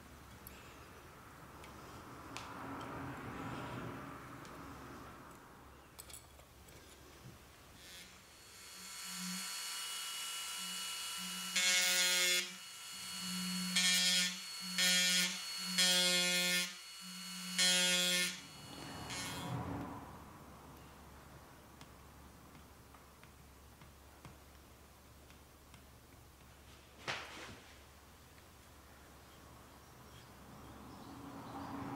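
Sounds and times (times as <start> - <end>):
rotary tool humming: 7.8 - 19.5
rotary tool bit cutting wood: 7.8 - 19.6.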